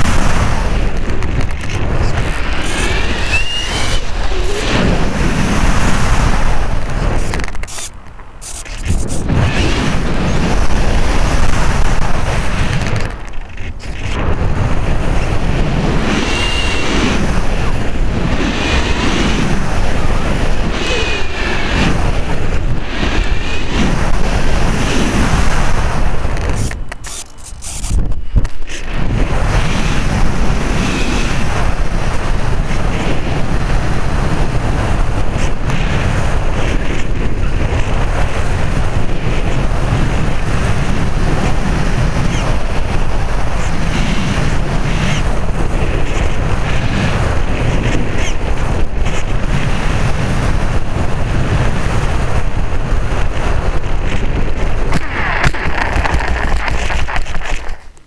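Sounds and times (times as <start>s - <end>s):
wind rushing over camera: 0.0s - 58.0s.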